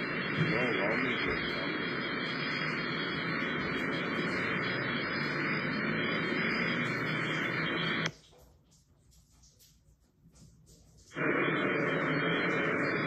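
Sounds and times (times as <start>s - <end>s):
static hiss: 0.0s - 8.1s, 11.0s - 13.0s.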